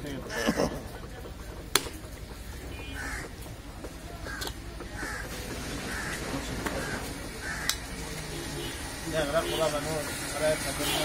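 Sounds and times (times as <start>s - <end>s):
cleaver chopping on wooden block: 1.7s - 2.0s.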